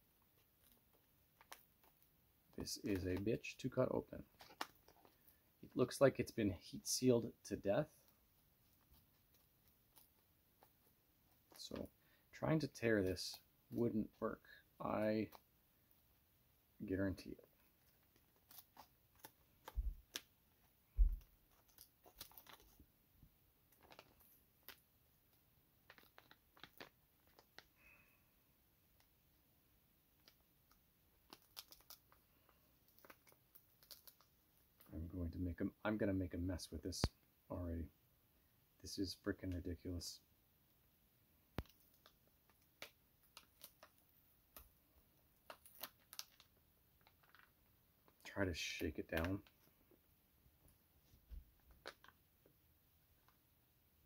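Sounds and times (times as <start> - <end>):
packaging crinkling: 17.5 - 22.8, 23.7 - 24.8, 25.8 - 28.1, 30.2 - 34.9, 41.6 - 48.3, 51.6 - 52.3.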